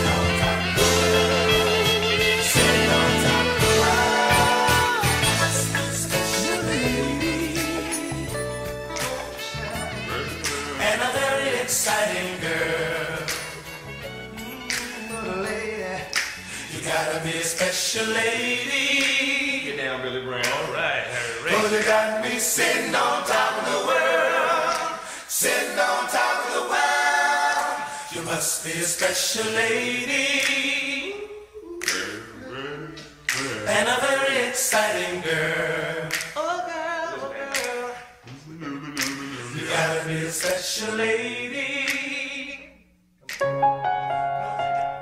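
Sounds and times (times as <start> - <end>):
piano: 0.0 - 16.8, 43.3 - 45.0
voices singing a cappella: 0.0 - 42.9.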